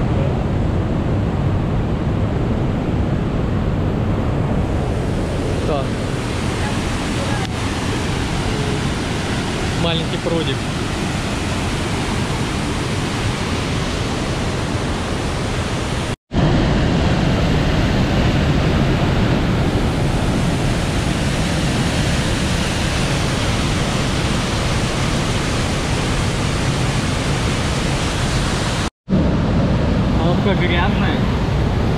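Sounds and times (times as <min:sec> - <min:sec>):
rushing water: 0:04.6 - 0:28.9.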